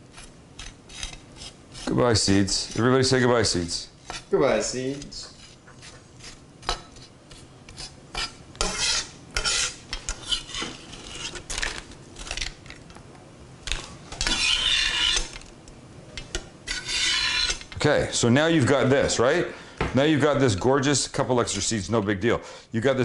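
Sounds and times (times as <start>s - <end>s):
knife scraping a cutting board: 0.1s - 12.5s, 13.7s - 15.4s, 16.6s - 17.8s.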